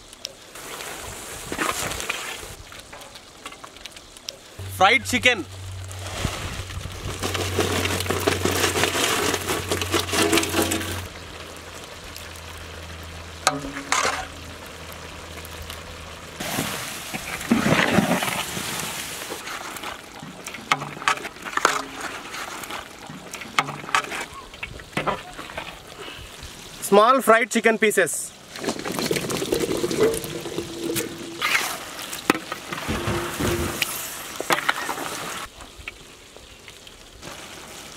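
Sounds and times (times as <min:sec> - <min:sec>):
ladle scraping: 0:06.0 - 0:11.1, 0:16.4 - 0:26.1, 0:28.6 - 0:35.4.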